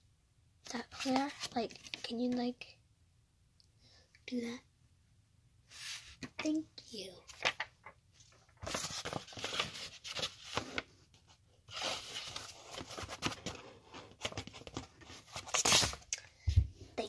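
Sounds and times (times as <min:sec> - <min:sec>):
paper envelope rustling: 0:00.9 - 0:02.0, 0:07.3 - 0:10.9, 0:11.7 - 0:16.0.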